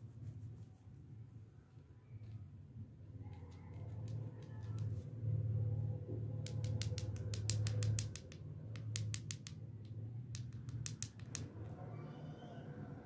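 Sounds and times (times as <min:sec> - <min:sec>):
lollipops clicking together: 0:03.3 - 0:05.0, 0:06.4 - 0:11.6.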